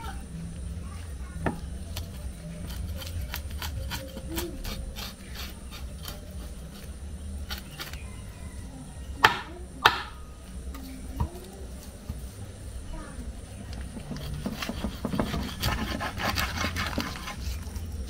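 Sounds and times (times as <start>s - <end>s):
knife scraping fish scales: 1.9s - 8.1s, 13.9s - 18.0s
loud knocks: 9.2s - 10.2s.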